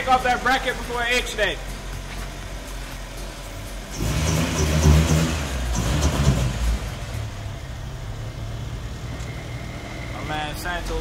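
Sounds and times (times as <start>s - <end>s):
car engine accelerating past: 3.9s - 7.4s.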